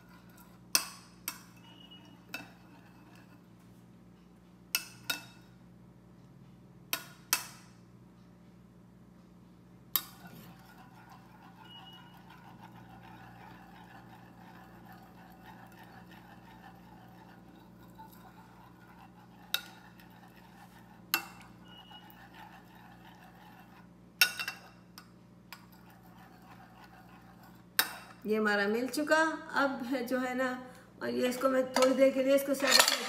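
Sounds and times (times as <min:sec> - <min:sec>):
metal spoon clinking on plate: 0:32.6 - 0:33.0.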